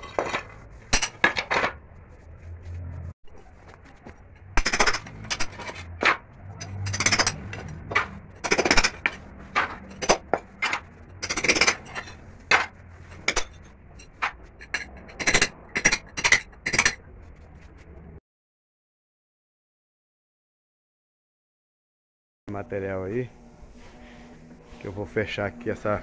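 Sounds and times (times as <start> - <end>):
chisel scraping concrete: 6.6 - 17.0.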